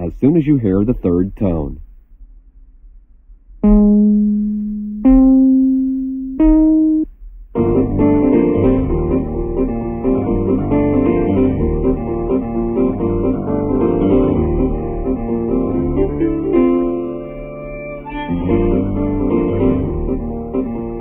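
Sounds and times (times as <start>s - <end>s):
pitched cue tone: 3.6s - 7.1s
instrumental piano music: 7.6s - 21.0s.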